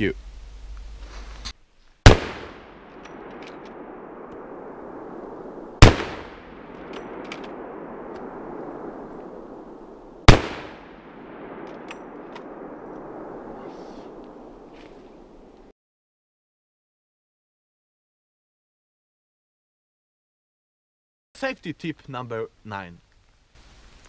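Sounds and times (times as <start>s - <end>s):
rifle shots with echo: 2.0s - 15.6s.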